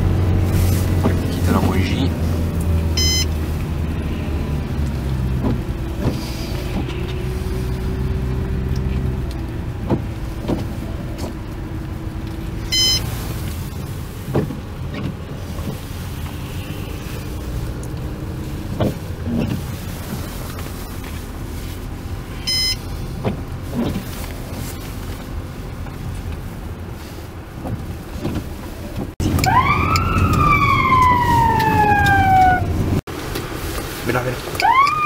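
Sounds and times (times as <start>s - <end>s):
vehicle cabin drone: 0.0s - 35.0s
short electronic beep: 3.0s - 3.3s, 12.7s - 13.0s, 22.5s - 22.8s.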